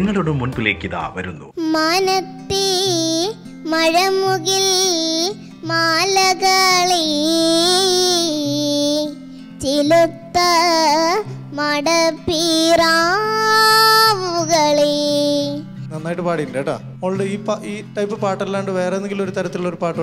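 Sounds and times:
quiet instrumental accompaniment: 0:00.0 - 0:20.0
girl singing into a microphone: 0:01.6 - 0:15.8.

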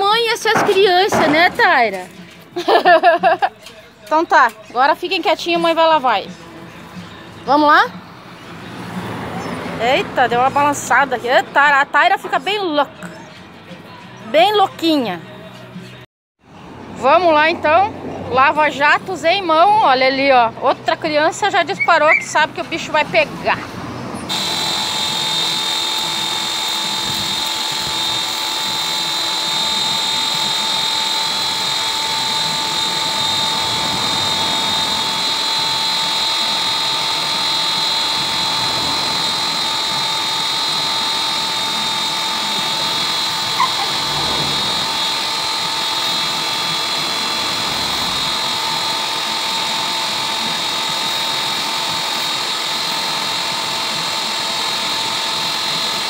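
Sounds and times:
pressure washer motor whine: 0:24.2 - 0:56.0.

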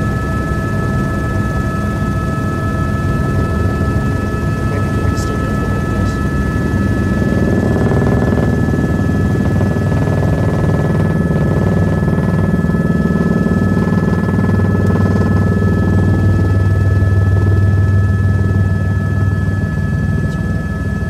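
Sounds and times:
helicopter rotor and engine drone: 0:00.0 - 0:21.0.

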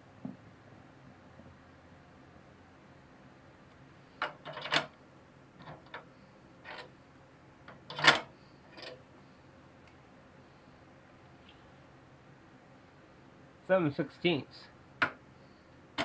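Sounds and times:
metallic clicks and knocks: 0:04.2 - 0:05.0.

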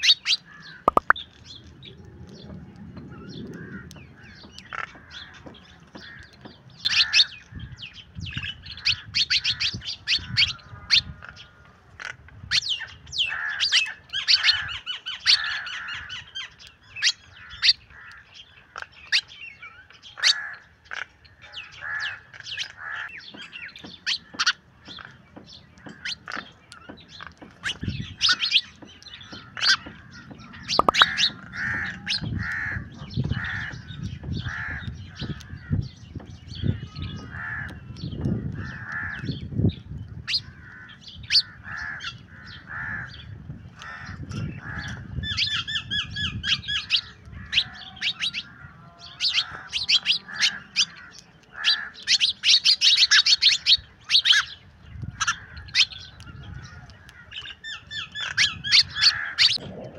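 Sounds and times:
harsh squawking calls: 0:00.0 - 0:01.2, 0:27.6 - 0:35.8, 0:43.8 - 0:59.9
sparrows chirping: 0:00.0 - 0:59.9.

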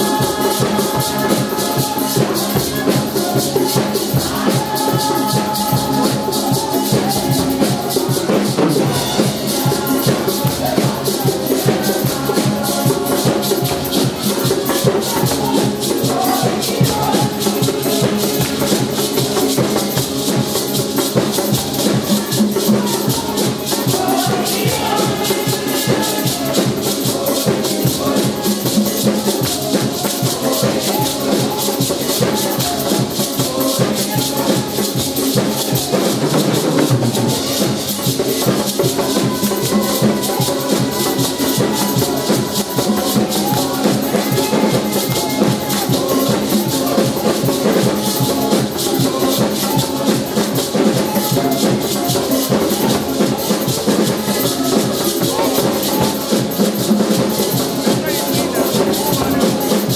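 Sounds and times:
fast shaker rhythm: 0:00.0 - 0:59.9
several voices singing worship song: 0:00.0 - 0:59.9.

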